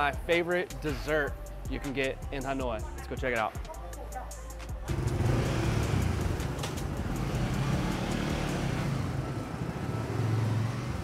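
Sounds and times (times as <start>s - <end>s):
engine drone: 4.9s - 11.0s
street noise: 4.9s - 11.0s.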